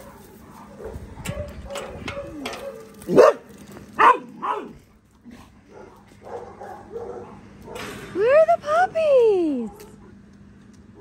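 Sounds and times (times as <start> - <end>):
dogs barking in play: 0.0 - 8.0.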